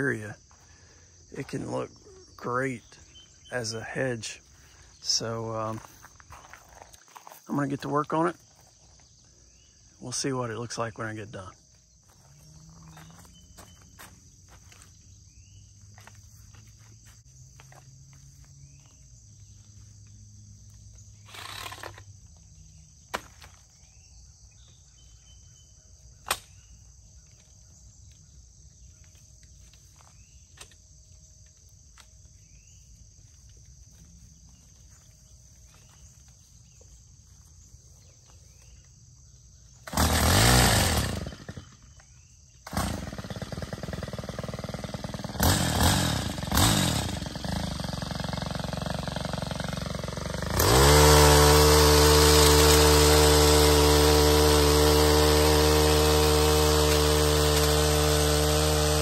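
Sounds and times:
insect chorus: 0:00.0 - 0:56.1
engine pull-started: 0:39.8 - 0:41.9, 0:42.6 - 0:58.8.

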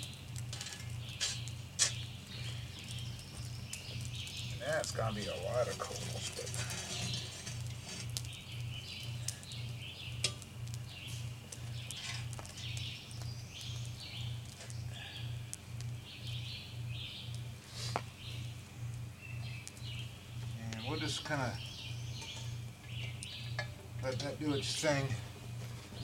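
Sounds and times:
low pulsing hum: 0:00.0 - 0:26.0
songbirds chirping: 0:00.0 - 0:26.0.

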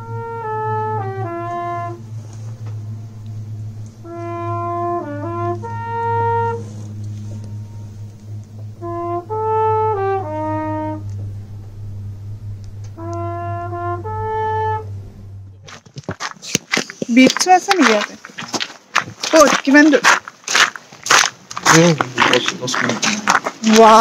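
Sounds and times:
brass horn fanfare: 0:00.0 - 0:15.6
steady low hum: 0:00.0 - 0:24.0.

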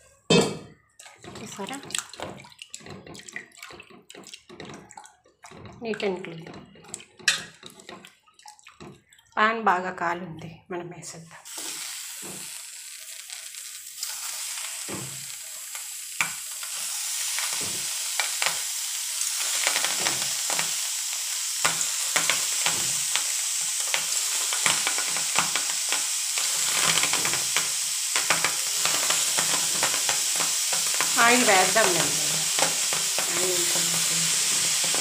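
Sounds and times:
fish sizzling in a hot pan: 0:11.4 - 0:35.0.

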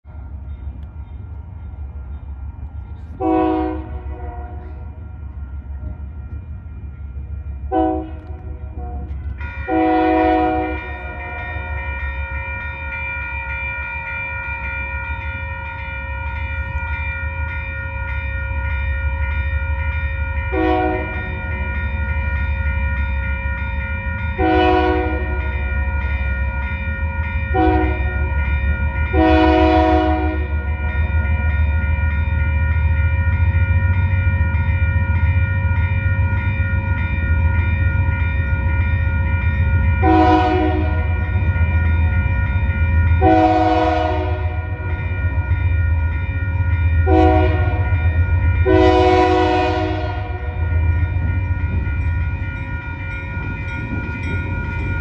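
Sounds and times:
diesel locomotive engines rumbling: 0:00.0 - 0:55.0
train air horn: 0:03.2 - 0:05.0, 0:07.7 - 0:11.2, 0:20.5 - 0:21.2, 0:24.4 - 0:25.4, 0:27.5 - 0:28.1, 0:29.2 - 0:30.5, 0:40.0 - 0:41.1, 0:43.2 - 0:44.8, 0:47.1 - 0:47.9, 0:48.6 - 0:50.6.

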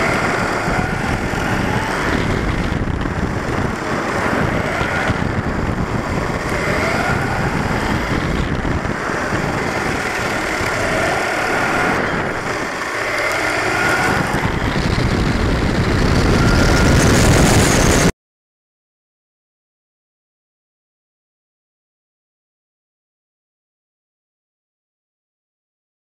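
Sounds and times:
electric motor whining: 0:00.0 - 0:18.1
tyres rumbling on asphalt: 0:00.0 - 0:18.1
wind on microphone: 0:00.0 - 0:18.1.

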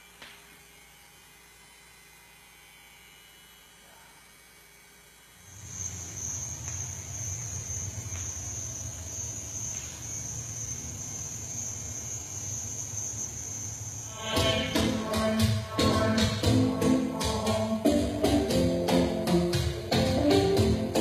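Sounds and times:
crickets chirping: 0:05.5 - 0:15.5
music with sharp percussive beats: 0:14.1 - 0:21.0.

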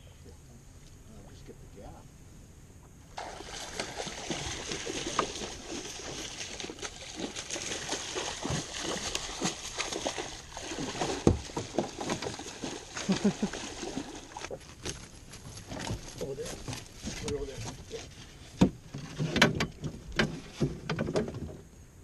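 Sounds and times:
fish splashing in water: 0:03.2 - 0:14.6.

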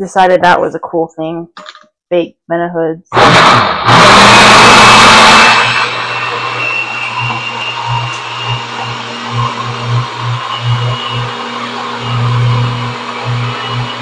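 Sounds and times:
blender running: 0:03.1 - 0:14.0.

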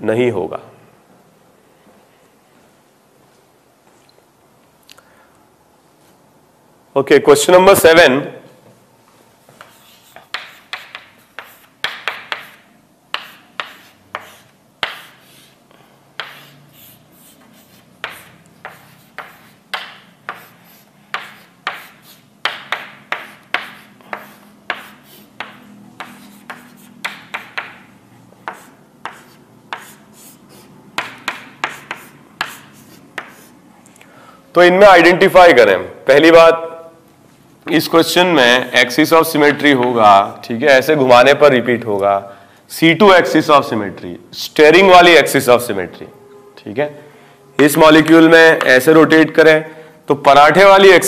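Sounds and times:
pen tapping and scratching on paper: 0:09.5 - 0:15.3, 0:16.2 - 0:33.5.

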